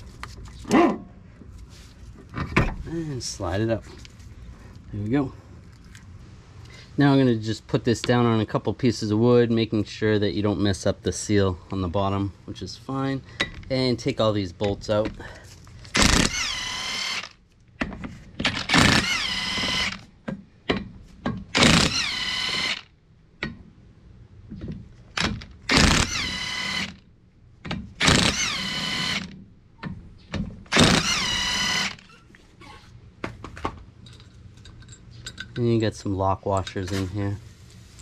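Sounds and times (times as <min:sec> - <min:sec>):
impact wrench whining and hammering: 0:15.9 - 0:23.6, 0:24.5 - 0:27.0, 0:27.6 - 0:32.3.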